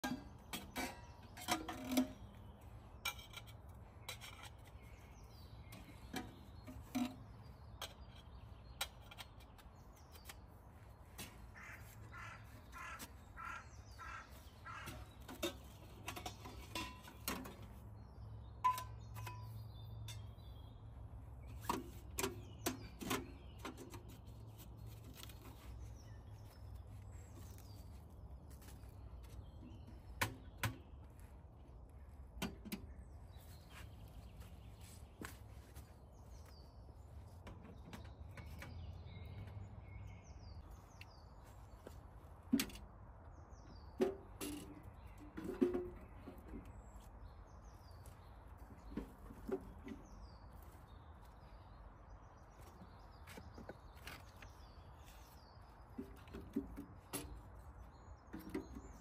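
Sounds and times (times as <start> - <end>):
crow cawing: 11.6 - 15.0.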